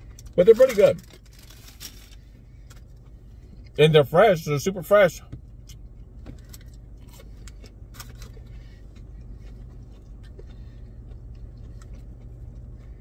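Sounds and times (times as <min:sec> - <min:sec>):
car hum: 0:00.0 - 0:13.0
person chewing crunchy food: 0:05.6 - 0:13.0.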